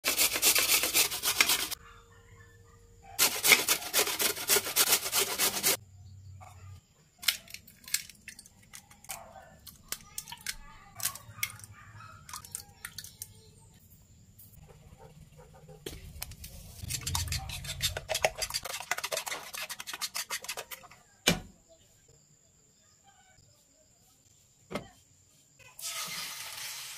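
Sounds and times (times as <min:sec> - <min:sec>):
squash grated on metal grater: 0:00.0 - 0:01.8, 0:03.2 - 0:05.8, 0:16.8 - 0:20.9
eggs cracked into wooden bowl: 0:07.2 - 0:11.7.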